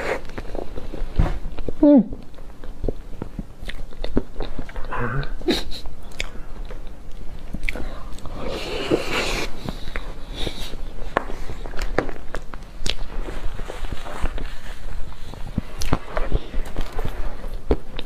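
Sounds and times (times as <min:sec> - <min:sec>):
chewing cake: 0:00.0 - 0:18.0.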